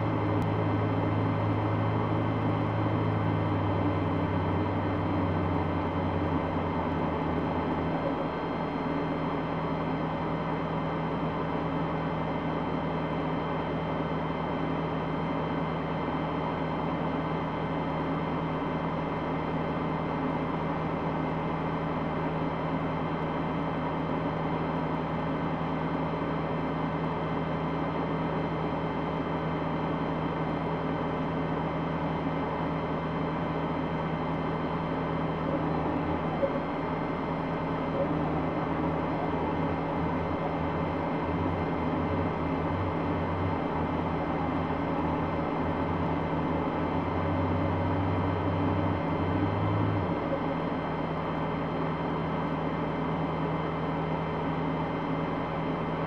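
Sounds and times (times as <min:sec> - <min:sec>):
truck engine idling: 0:00.0 - 0:55.9.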